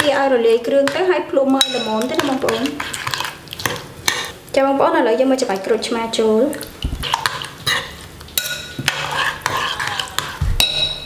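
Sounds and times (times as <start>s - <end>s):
metal spoon clinking in ceramic bowl: 1.6s - 2.1s, 8.4s - 11.0s.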